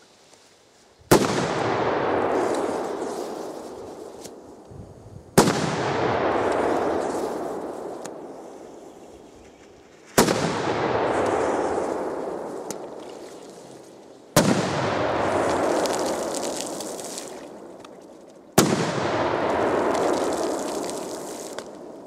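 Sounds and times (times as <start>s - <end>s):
firecracker bangs: 1.1s - 3.5s, 5.4s - 8.4s, 10.1s - 12.8s, 14.3s - 17.5s, 18.6s - 22.0s.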